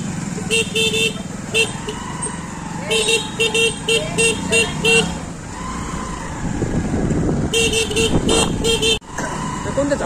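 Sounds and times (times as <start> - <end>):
traffic and engine noise: 0.0 - 10.0
vehicle horn short beeps: 7.5 - 9.0.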